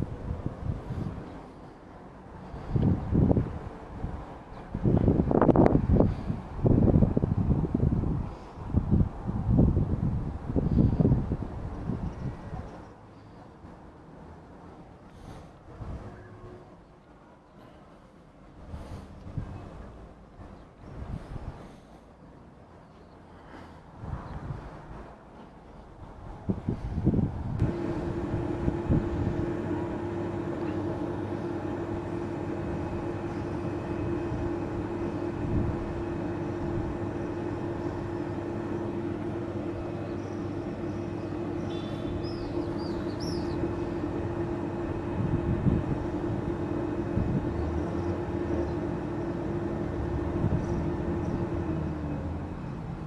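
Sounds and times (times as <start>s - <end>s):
broad rumbling noise: 0.0s - 12.6s, 26.0s - 53.0s
steady mechanical hum: 0.0s - 53.0s.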